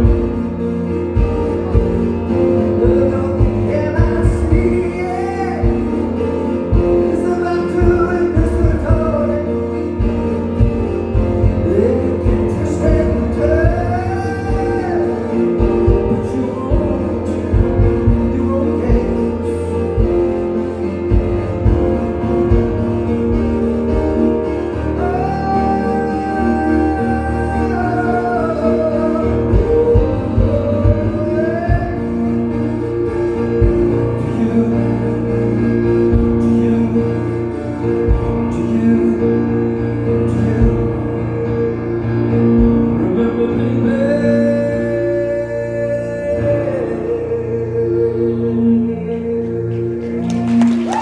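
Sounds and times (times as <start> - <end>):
steady low beat: 0.0 - 45.3
person singing: 0.0 - 51.0
synth chords: 0.0 - 51.0.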